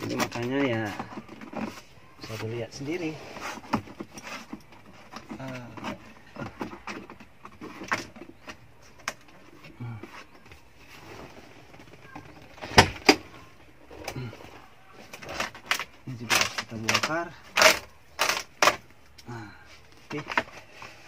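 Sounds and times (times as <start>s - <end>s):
rubber seal handling clicks and rustles: 0.0s - 10.8s, 11.7s - 21.0s.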